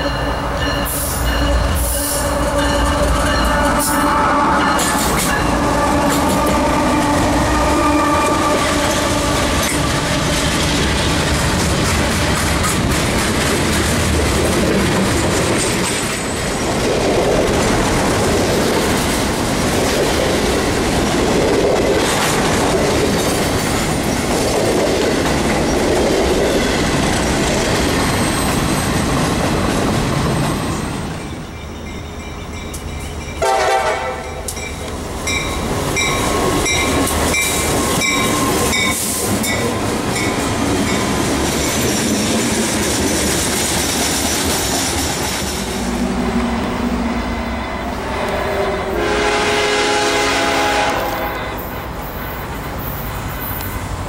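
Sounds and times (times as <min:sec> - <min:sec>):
locomotive horn: 0:00.0 - 0:09.8, 0:33.4 - 0:34.5, 0:47.6 - 0:51.8
freight train cars rolling: 0:00.0 - 0:54.0.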